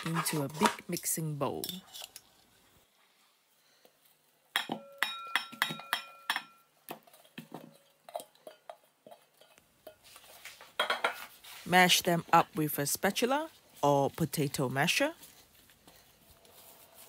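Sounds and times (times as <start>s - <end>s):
bowls clinking together: 4.5s - 8.8s.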